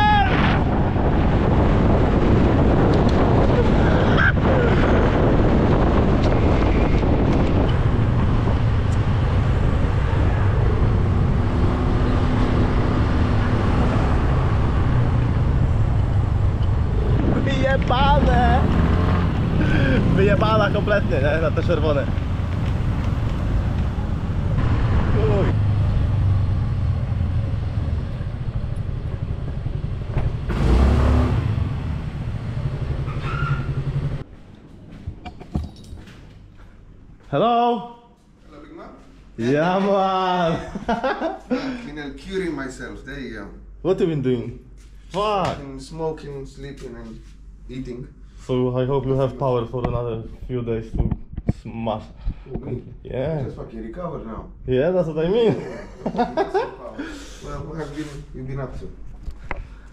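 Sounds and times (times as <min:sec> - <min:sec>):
wind rumbling on microphone: 0:00.0 - 0:34.3, 0:49.8 - 0:53.0
road noise: 0:00.0 - 0:37.3
vehicle engine hum: 0:00.7 - 0:34.3.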